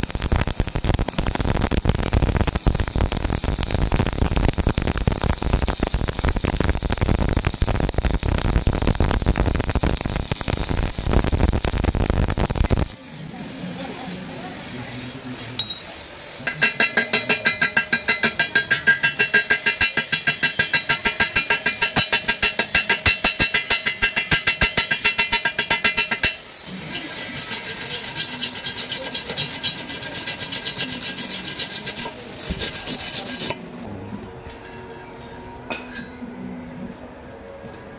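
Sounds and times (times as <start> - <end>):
wire brush scrubbing metal: 12.6 - 33.6
metal tube ringing: 15.6 - 26.4.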